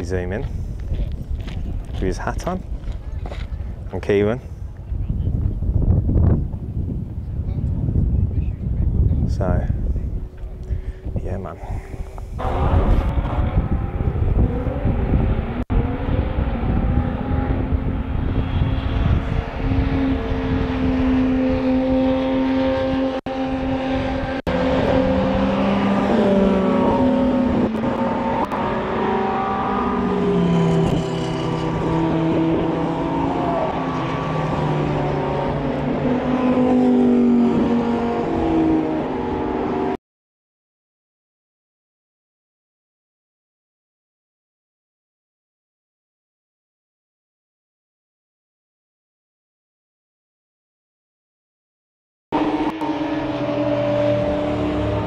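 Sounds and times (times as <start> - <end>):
wind buffeting microphone: 0.0 - 39.8
race car engines passing: 12.4 - 40.0, 52.4 - 55.0.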